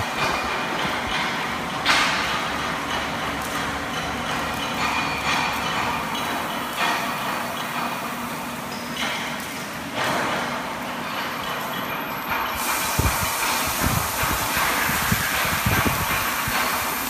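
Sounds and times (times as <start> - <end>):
welding torch hissing: 12.4 - 17.0
short rushes of hiss: 12.5 - 17.0.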